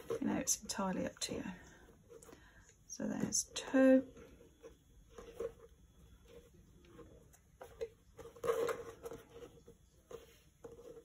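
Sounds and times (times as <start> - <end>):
cord rustling: 4.5 - 11.0.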